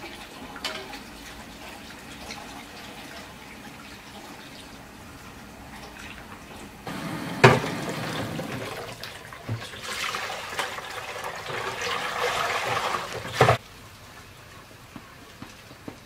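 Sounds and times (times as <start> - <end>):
tap running into metal sink: 7.4 - 9.7.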